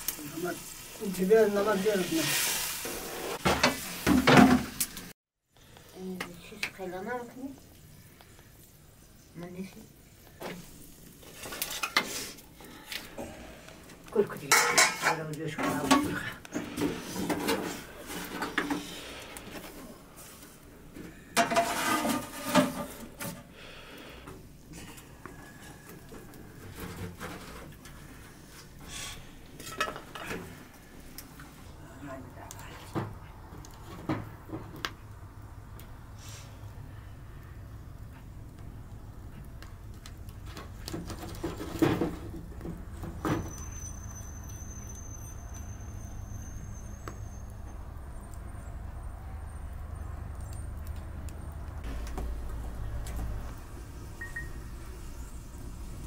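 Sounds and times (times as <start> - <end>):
wood fire crackling: 0.0 - 56.0
metal tray clanking on metal pot: 14.4 - 16.2, 21.4 - 23.0
thin high whistle: 43.3 - 47.8, 54.2 - 54.6.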